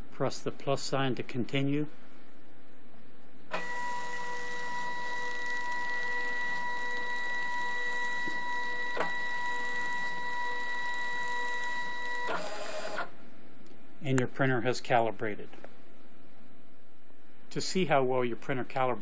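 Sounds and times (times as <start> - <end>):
label printer motor whine: 3.5 - 13.2.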